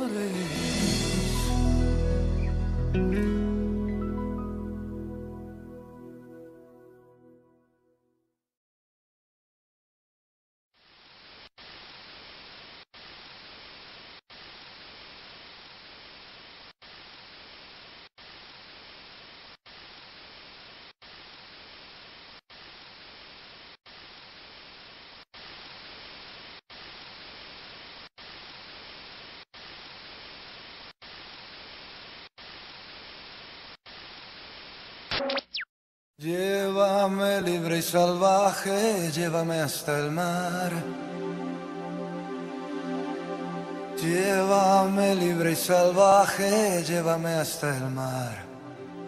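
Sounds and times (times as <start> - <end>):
static-like hiss: 10.8 - 35.6, 36.2 - 49.0.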